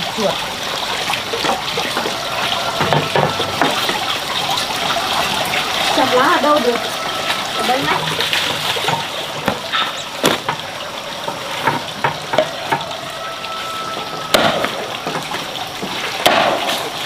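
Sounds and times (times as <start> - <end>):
water splashing and trickling: 0.0 - 17.0
small knocks and clatters: 1.4 - 4.2, 7.3 - 13.0.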